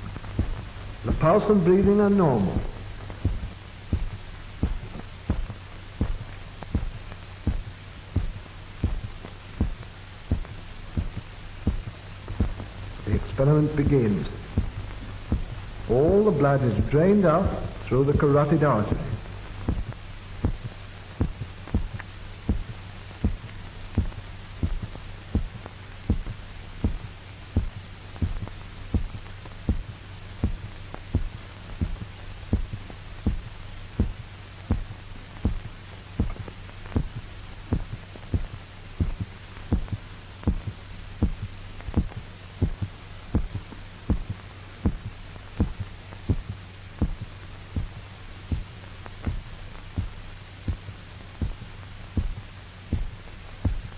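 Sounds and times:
film soundtrack hiss: 0.0s - 53.9s
heartbeat thumps: 0.0s - 53.9s
low hum: 0.0s - 53.9s.

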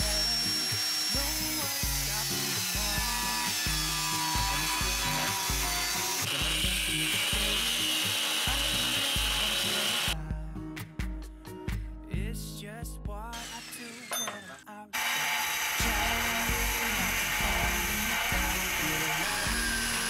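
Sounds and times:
angle grinder cutting steel: 0.0s - 10.2s, 13.4s - 20.0s
background music with bass beat: 2.8s - 7.8s, 8.5s - 13.4s, 15.8s - 20.0s.

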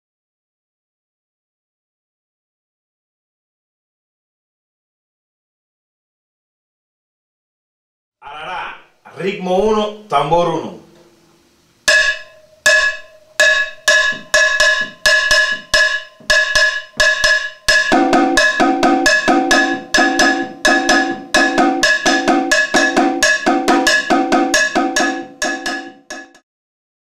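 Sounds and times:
conga drum strokes: 10.8s - 26.4s
hand bell struck with a stick: 11.9s - 26.4s.

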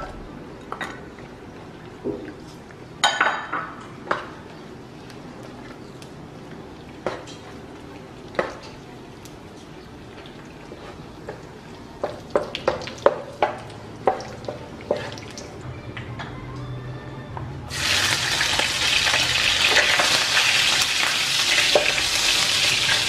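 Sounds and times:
sausage sizzling in a pan: 17.7s - 23.0s.

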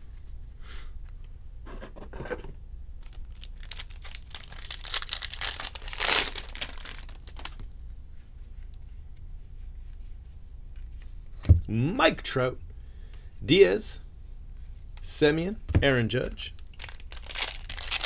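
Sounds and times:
foil wrapper crinkling and tearing: 3.0s - 7.6s, 16.6s - 18.0s.

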